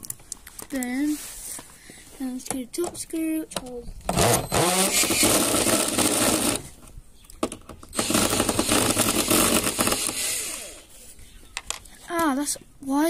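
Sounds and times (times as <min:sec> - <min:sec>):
power drill backing out screw: 0:04.1 - 0:06.7, 0:07.9 - 0:10.8.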